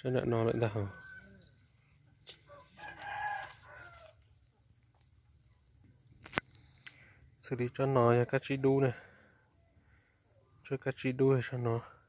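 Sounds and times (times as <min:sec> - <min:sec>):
faint rooster crowing: 0:00.4 - 0:04.3.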